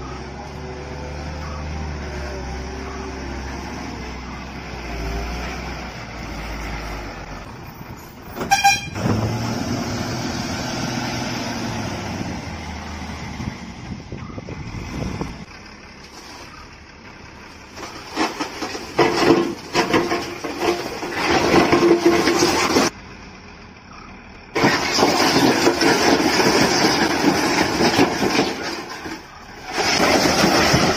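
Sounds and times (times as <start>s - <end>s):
diesel truck engine running: 0.0s - 30.9s
truck horn toot: 8.4s - 9.2s.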